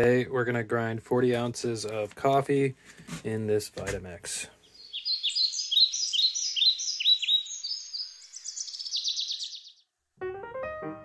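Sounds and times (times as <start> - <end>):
high bird-like chirping: 4.6 - 9.9
piano music: 10.2 - 11.0.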